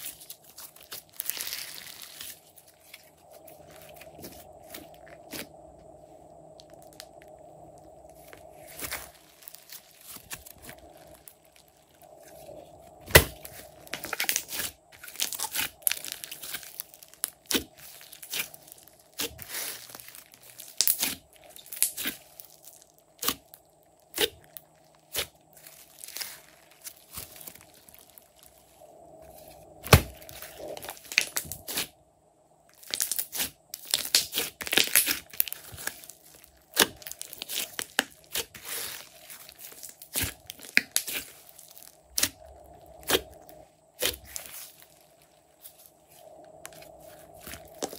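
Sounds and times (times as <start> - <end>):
slime squelching and popping: 0.0 - 5.5, 6.6 - 28.6, 32.8 - 45.9, 46.6 - 47.9.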